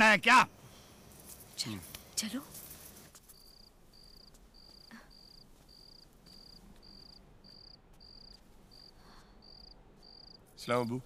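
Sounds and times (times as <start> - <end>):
cricket chirping: 0.0 - 11.0.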